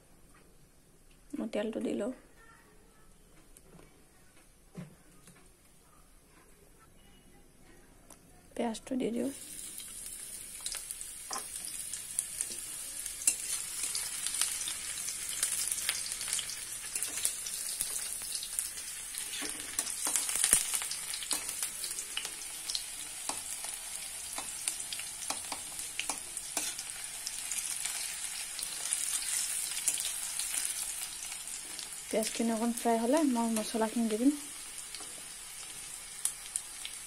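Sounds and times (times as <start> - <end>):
onions sizzling in oil: 9.0 - 37.0.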